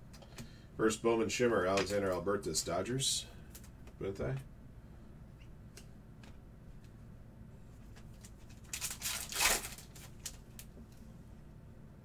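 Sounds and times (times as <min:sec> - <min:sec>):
foil wrapper tearing: 0:08.2 - 0:10.7.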